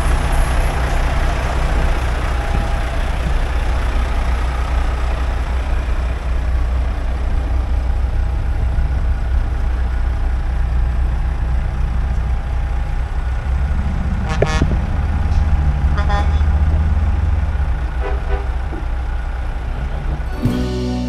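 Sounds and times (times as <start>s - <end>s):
truck diesel engines idling: 0.0s - 21.0s
short horn toots: 14.3s - 14.8s, 18.0s - 18.6s.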